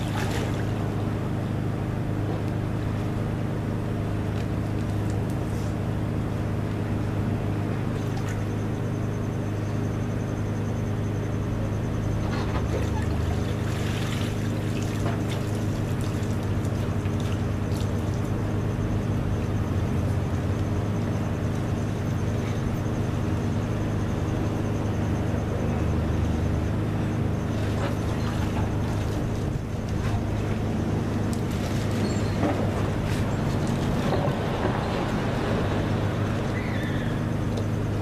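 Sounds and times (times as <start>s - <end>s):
water sloshing: 0.0s - 1.2s, 12.4s - 18.5s, 27.4s - 37.8s.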